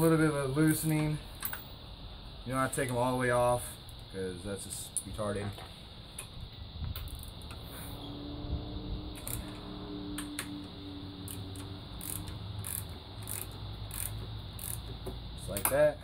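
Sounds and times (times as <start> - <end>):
socket ratchet clicking: 11.2 - 15.8.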